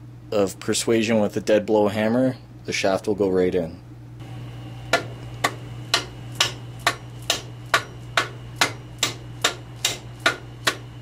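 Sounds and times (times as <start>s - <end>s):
hammer blows on metal shaft: 4.9s - 11.0s.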